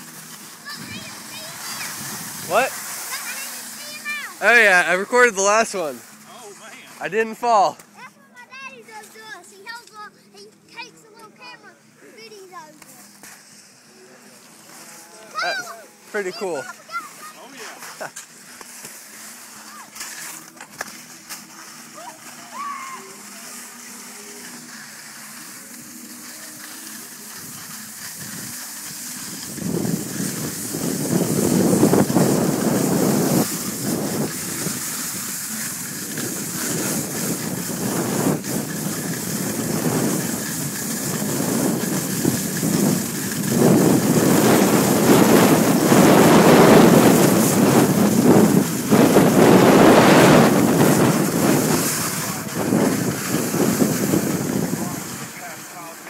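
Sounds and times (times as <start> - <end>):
skis scraping over snow: 0.0 - 56.0
wind rushing over microphone: 0.7 - 3.1, 27.4 - 55.6.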